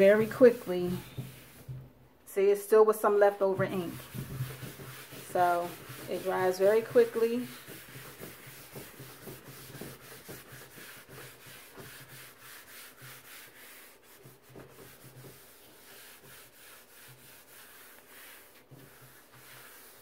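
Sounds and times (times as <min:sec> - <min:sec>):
paper towel rubbing on mat: 0:00.0 - 0:01.9, 0:03.0 - 0:20.0.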